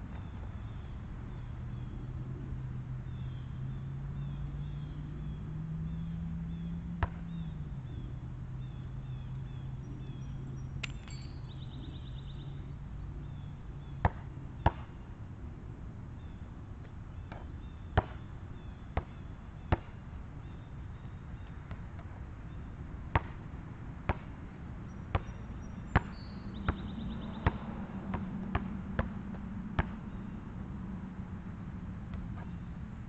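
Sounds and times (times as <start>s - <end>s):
steady low hum: 0.0s - 33.0s
basketball bouncing on asphalt: 5.9s - 8.1s, 13.3s - 15.0s, 16.8s - 30.3s, 32.1s - 32.7s.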